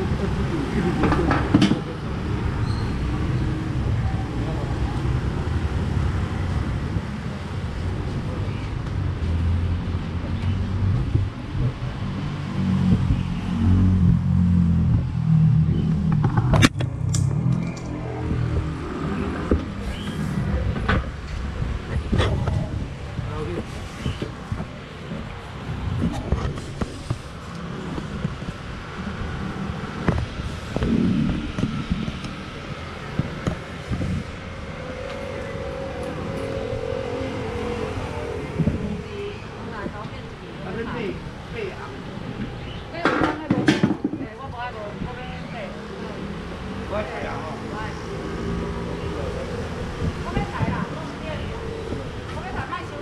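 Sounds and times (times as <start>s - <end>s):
scooters and cars passing: 0.0s - 53.0s
vehicle engine rumbling: 0.0s - 53.0s
steady engine tone: 33.7s - 39.9s.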